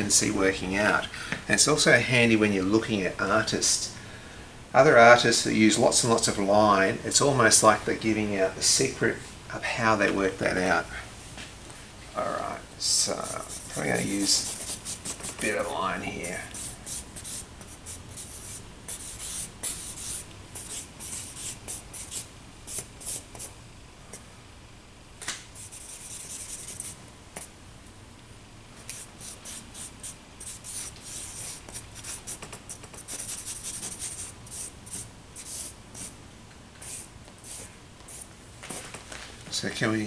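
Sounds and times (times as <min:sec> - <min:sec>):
charcoal scratching on paper: 0:13.2 - 0:15.6, 0:16.2 - 0:23.5, 0:25.6 - 0:27.0, 0:28.9 - 0:36.2, 0:36.8 - 0:38.3.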